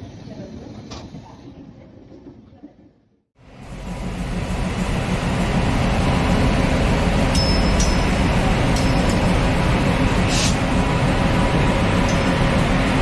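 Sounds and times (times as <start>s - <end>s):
train rumbling on track: 3.4s - 13.0s
short hiss: 10.3s - 10.6s.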